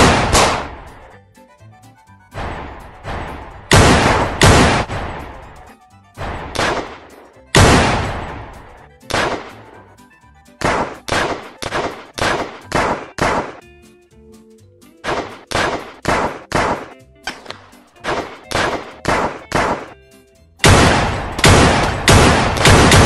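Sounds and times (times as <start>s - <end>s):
pistol gunshots echoing: 0.0s - 1.1s, 3.1s - 5.4s, 6.3s - 9.7s, 10.6s - 13.6s, 15.0s - 20.0s, 20.6s - 23.0s.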